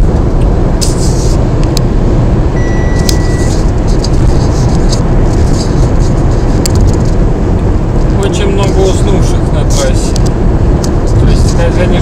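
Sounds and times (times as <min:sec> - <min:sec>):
car road and engine rumble: 0:00.0 - 0:12.0
short high tone: 0:02.6 - 0:03.6.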